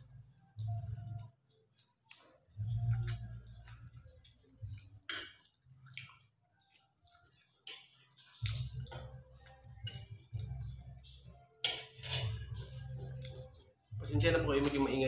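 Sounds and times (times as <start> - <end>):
cutlery clicking on plates: 5.0 - 5.6, 7.6 - 8.0, 11.6 - 12.5
muffled karaoke music bass: 12.2 - 15.0.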